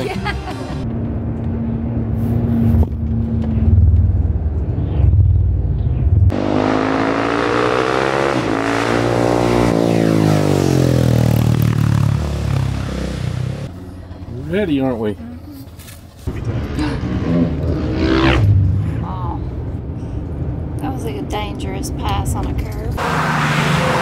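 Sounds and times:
engine and road rumble: 0.0s - 24.0s
motorcycle revving past: 6.3s - 13.7s, 16.4s - 19.0s.

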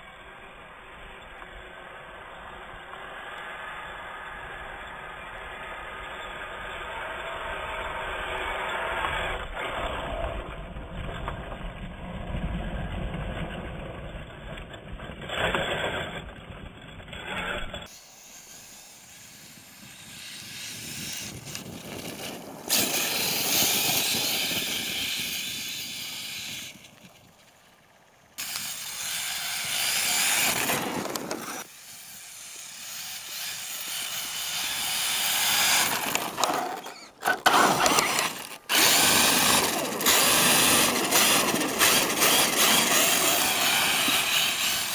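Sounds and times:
electric motor whining: 28.4s - 44.9s.

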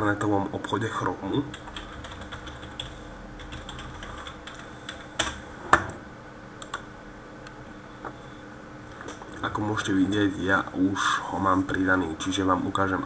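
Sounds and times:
typing on a computer keyboard: 1.5s - 5.4s.

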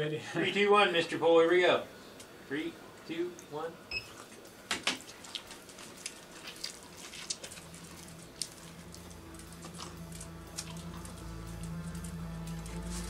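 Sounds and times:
person chewing and biting food: 4.1s - 13.0s
background music: 7.6s - 13.0s.

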